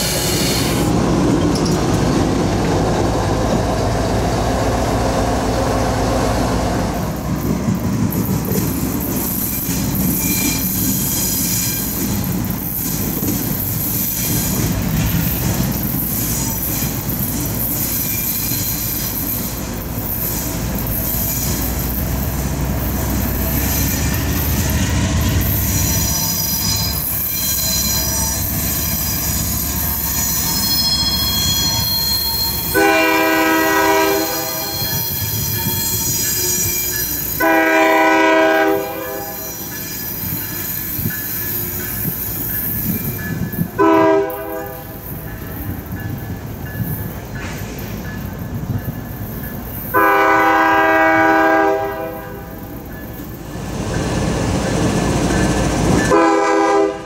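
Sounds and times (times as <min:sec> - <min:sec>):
diesel locomotive rumbling past: 0:00.0 - 0:57.0
wheels squealing: 0:08.4 - 0:37.4
locomotive horn chord: 0:32.7 - 0:34.8, 0:37.4 - 0:39.4, 0:43.8 - 0:44.8, 0:50.0 - 0:52.5, 0:56.1 - 0:57.0.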